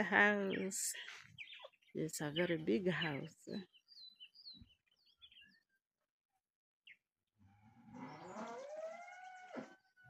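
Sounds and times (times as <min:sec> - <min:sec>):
cow mooing: 0:07.6 - 0:09.9.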